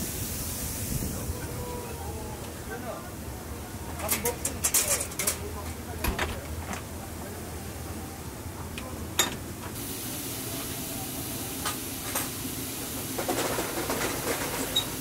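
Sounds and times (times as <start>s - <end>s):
steam hissing from steamer: 0.0s - 2.6s, 9.8s - 15.0s.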